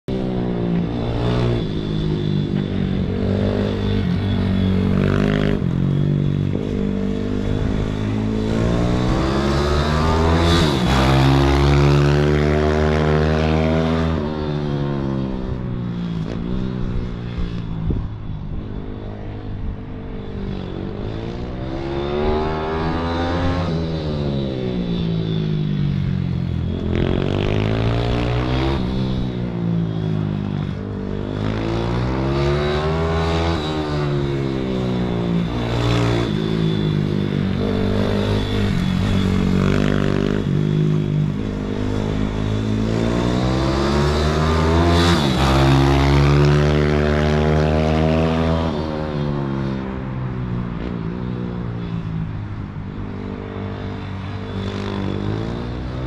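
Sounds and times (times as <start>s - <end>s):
high-pitched whine: 0.1s - 56.0s
small racing engines revving: 0.8s - 14.3s, 31.1s - 49.8s.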